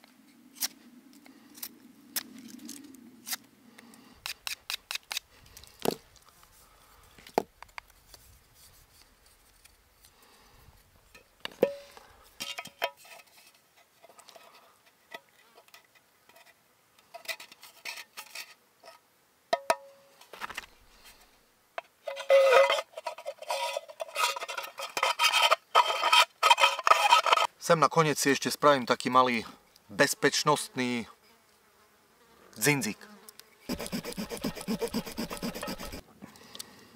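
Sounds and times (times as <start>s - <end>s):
knife whittling wooden twig: 33.7s - 36.0s.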